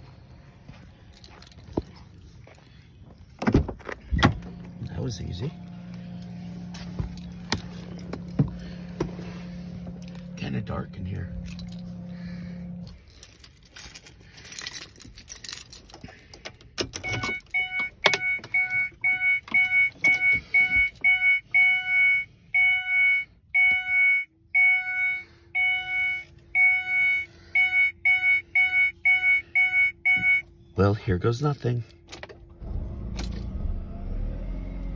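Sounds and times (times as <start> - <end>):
low steady hum: 0.0 - 34.9
keys jangling and clicking: 0.7 - 2.2, 11.4 - 12.0, 12.8 - 21.0, 33.1 - 33.5
car warning chime beeping: 16.9 - 30.9.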